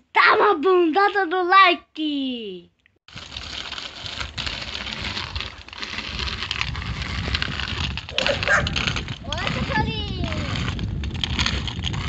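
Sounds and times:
bicycle tyres rolling and rattling: 3.1 - 12.0
wind on microphone: 4.2 - 12.0.

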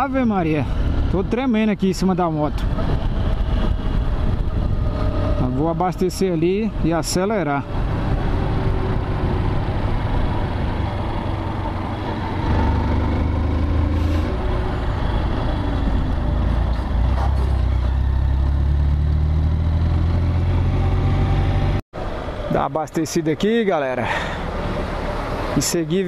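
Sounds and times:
wind noise on microphone: 2.4 - 7.0, 7.6 - 13.2.

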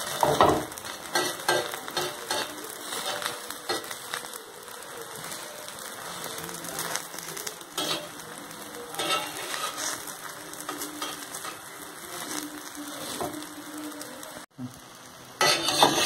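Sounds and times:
spatula scraping a pan: 0.0 - 4.0, 5.2 - 8.2, 8.9 - 13.4, 15.4 - 16.0
omelette sizzling in oil: 0.0 - 16.0.

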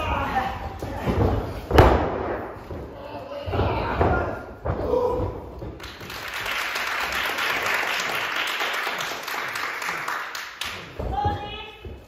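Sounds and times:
audience applauding: 5.8 - 10.7.

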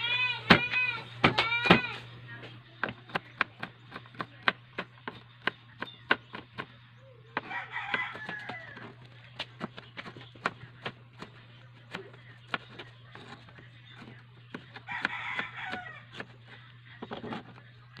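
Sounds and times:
knife chopping on cutting board: 2.8 - 6.7, 7.4 - 17.6
rooster crowing: 7.4 - 9.0, 14.9 - 16.1.

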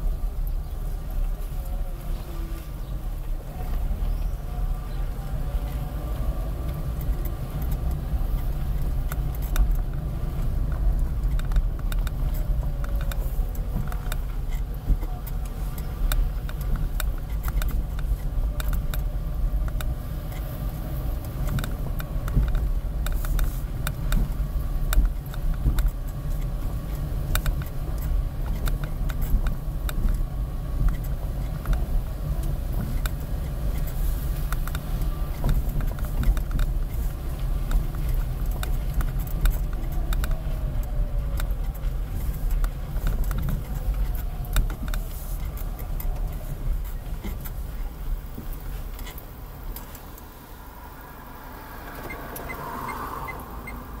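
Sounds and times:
car engine and tyre rumble: 0.0 - 54.0
car interior rattles: 0.0 - 54.0.

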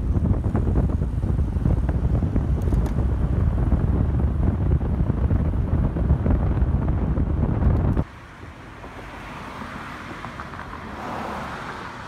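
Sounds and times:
wind buffeting microphone: 0.0 - 8.1
low road rumble: 0.0 - 12.0.

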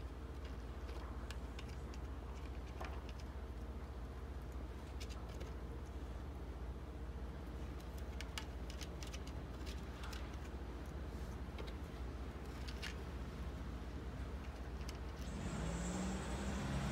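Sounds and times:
cat crunching food: 0.0 - 6.0, 7.5 - 13.2
distant traffic rumble: 12.2 - 16.9.

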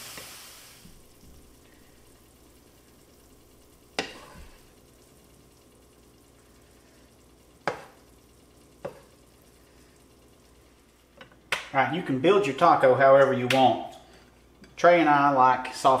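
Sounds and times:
faint sizzle from pan: 0.0 - 16.0
wooden spoon knocking on pan: 7.6 - 8.0, 8.8 - 9.1.

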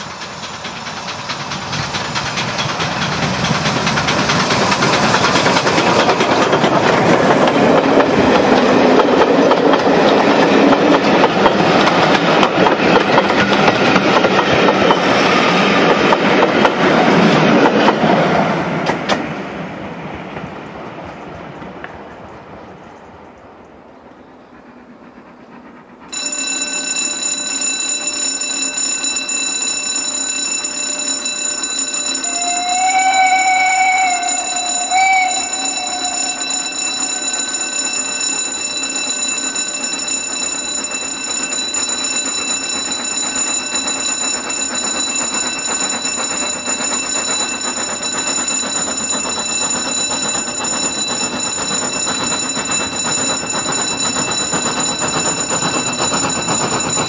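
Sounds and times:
steam locomotive running: 0.0 - 57.0
steady high ringing tone: 26.1 - 57.0
steam locomotive whistle: 32.3 - 37.3.

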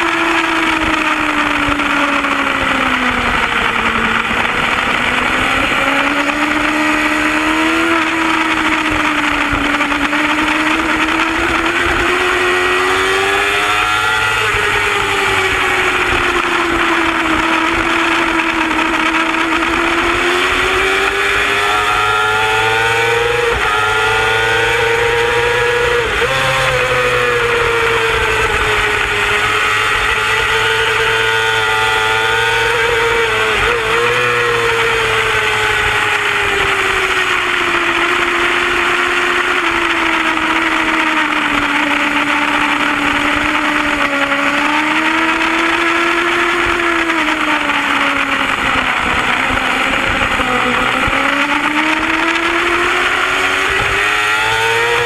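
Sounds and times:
motorcycle engine at racing speed: 0.0 - 55.0.

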